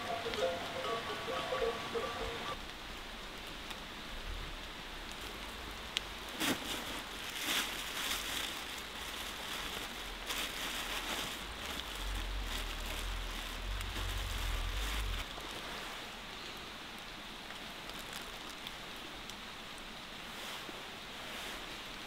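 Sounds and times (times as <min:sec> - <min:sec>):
plastic bag crinkling: 0:06.4 - 0:15.6
low rumble: 0:10.0 - 0:15.5.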